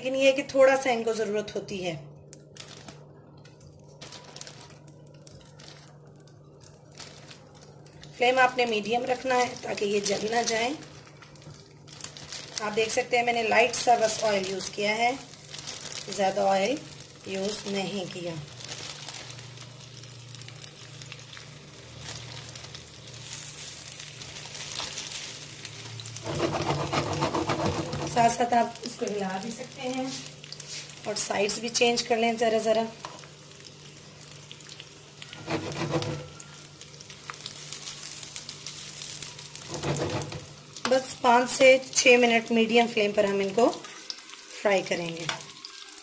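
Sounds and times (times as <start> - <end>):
small crackles: 2.3 - 27.0, 32.8 - 42.0
meat sizzling in oil: 4.7 - 46.0.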